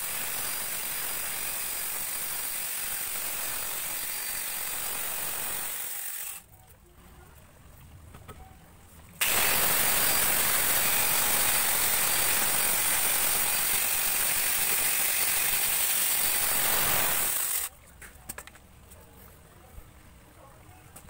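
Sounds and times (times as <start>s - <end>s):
angle grinder chain spinning: 9.2s - 17.7s.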